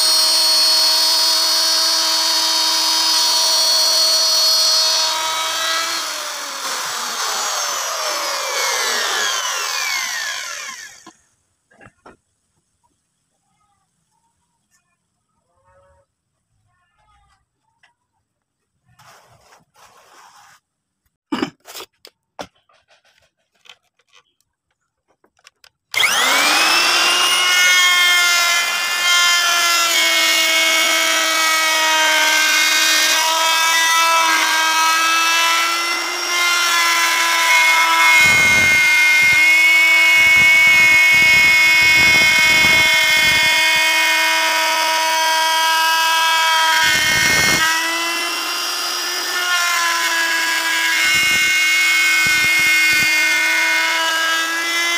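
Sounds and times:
wood router whining: 0:00.0 - 0:12.2, 0:25.4 - 0:54.9.

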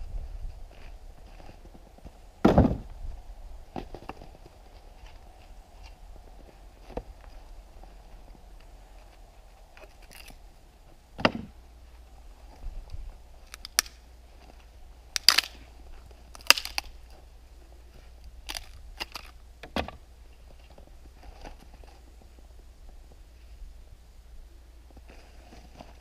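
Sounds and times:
axe splitting wood thud: 0:02.4 - 0:02.9, 0:11.2 - 0:11.5.

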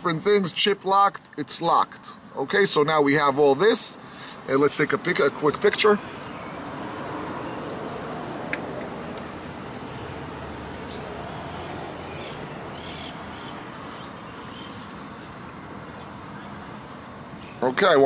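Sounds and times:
outdoor background noise: 0:00.0 - 0:18.0
faint bird chirps: 0:10.8 - 0:16.7.

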